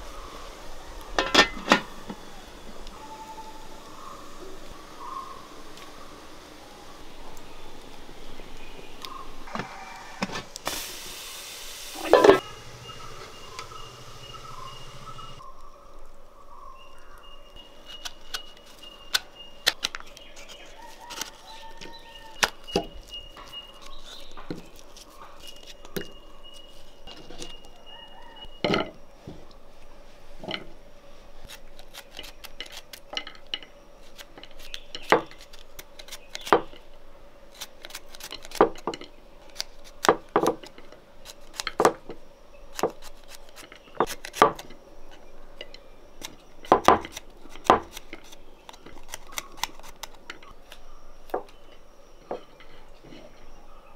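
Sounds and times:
chickens calling: 0.0s - 10.6s, 11.9s - 15.5s
dishes clinking: 1.2s - 1.9s, 12.0s - 12.5s, 28.6s - 29.0s.

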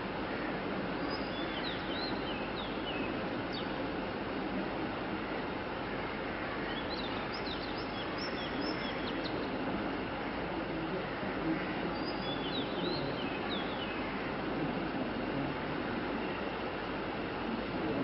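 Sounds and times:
steady background hum: 0.0s - 18.0s
small birds chirping: 0.9s - 3.8s, 6.5s - 9.6s, 11.4s - 14.4s.

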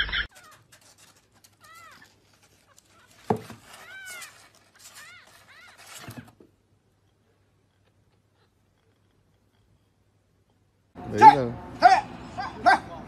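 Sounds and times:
claws scrabbling on cardboard: 0.3s - 6.6s.

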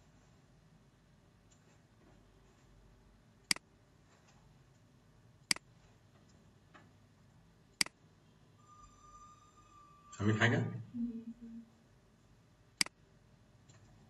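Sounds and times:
low room hum: 0.0s - 14.0s
computer mouse clicks: 12.8s - 13.0s.

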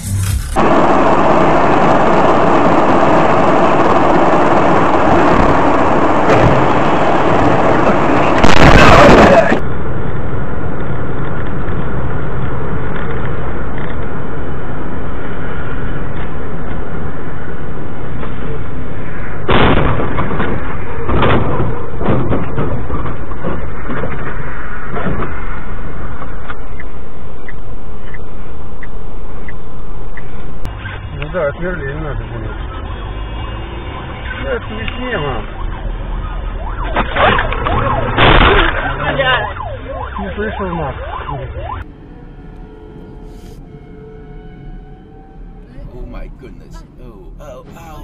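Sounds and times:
road noise inside vehicle: 0.0s - 48.0s
truck collision crash: 19.5s - 25.5s, 36.9s - 39.4s.

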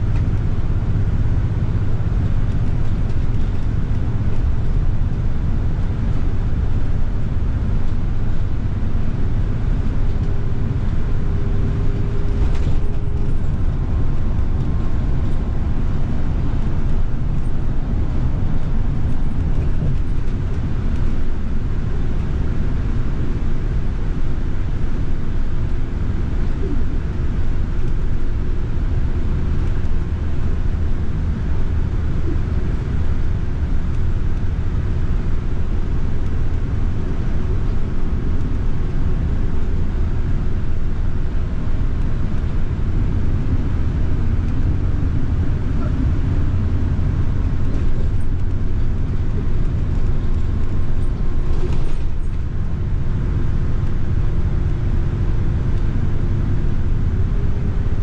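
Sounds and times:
bus engine and road rumble: 0.0s - 58.0s.

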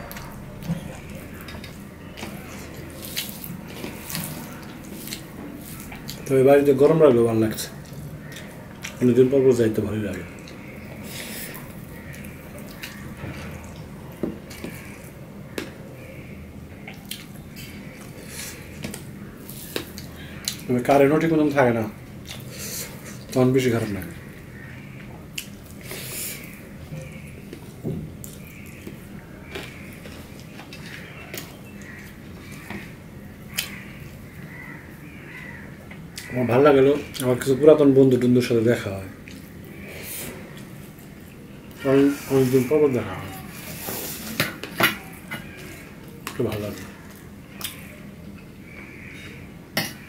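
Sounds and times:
chewing: 0.0s - 6.3s, 7.6s - 9.0s, 10.1s - 16.0s, 22.2s - 23.4s, 39.2s - 41.8s.

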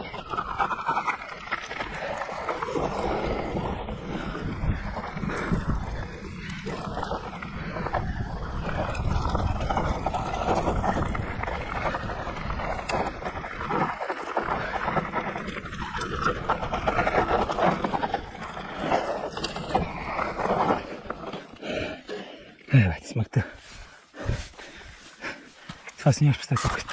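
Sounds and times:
bike rattling and knocking: 0.0s - 22.2s
wind buffeting microphone: 1.8s - 20.2s.

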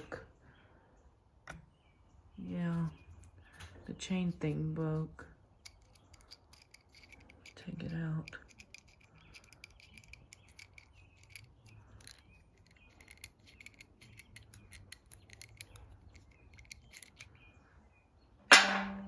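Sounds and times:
small metal ticks and scrapes: 2.7s - 17.4s.

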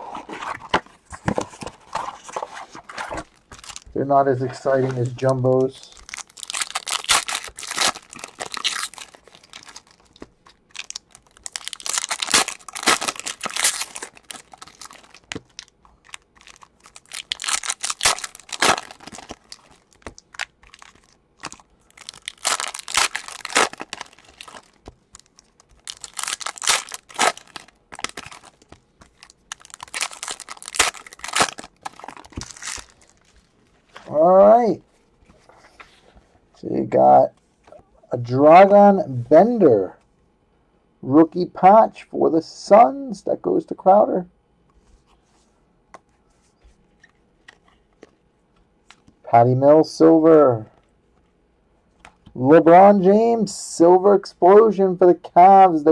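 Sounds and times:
foil wrappers tearing and crinkling: 3.2s - 3.9s, 5.1s - 33.4s.

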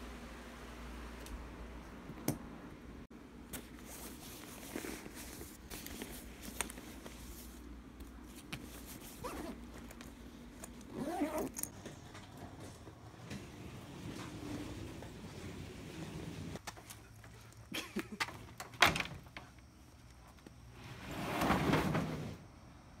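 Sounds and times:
backpack handling clicks and rustles: 3.5s - 13.4s.

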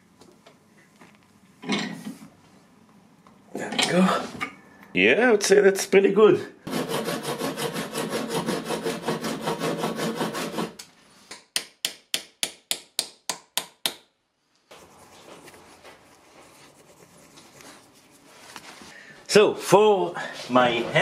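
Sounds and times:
saw cutting metal pin: 6.7s - 10.8s
hands rubbing: 14.6s - 19.0s.

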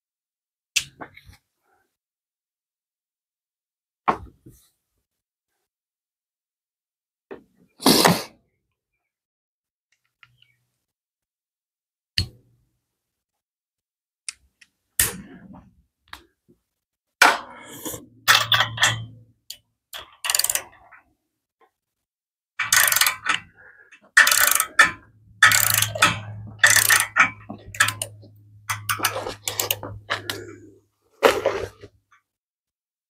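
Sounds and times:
ratchet clicking and scraping: 17.7s - 19.2s, 20.0s - 21.0s, 22.6s - 30.4s.

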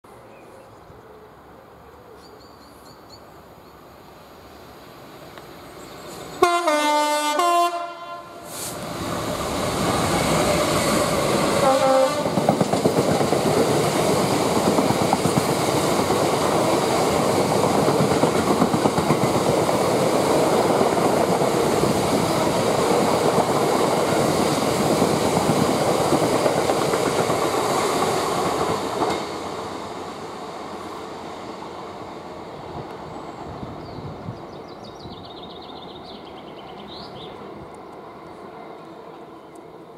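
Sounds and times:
locomotive horn: 6.4s - 8.5s, 11.6s - 12.4s
train wheels clattering on rails: 9.1s - 29.6s.

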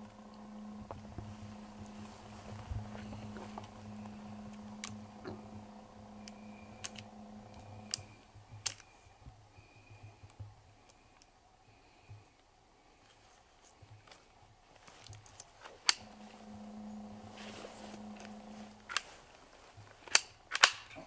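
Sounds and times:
low hum: 0.0s - 21.0s
rifle and gear clicking: 17.9s - 19.2s, 20.0s - 21.0s.

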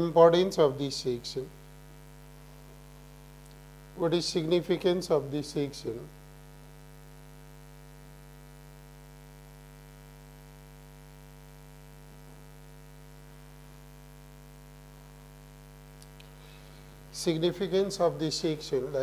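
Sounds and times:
electrical mains hum: 0.0s - 19.0s
faint hiss: 15.8s - 19.0s.

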